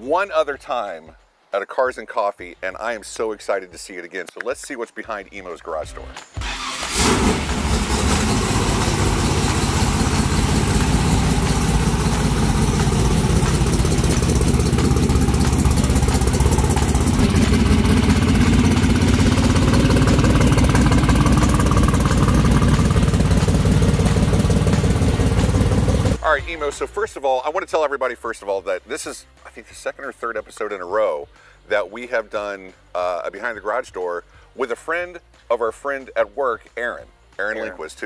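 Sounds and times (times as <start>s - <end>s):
car engine idling loudly: 6.9s - 26.2s.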